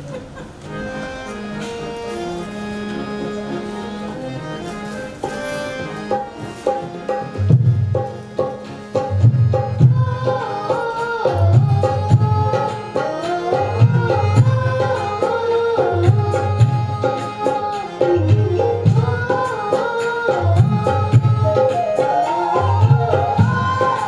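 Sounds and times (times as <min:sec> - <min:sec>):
keyboard melody: 0:00.0 - 0:24.0
tabla rhythm: 0:05.2 - 0:24.0
boy singing devotional song: 0:07.9 - 0:24.0.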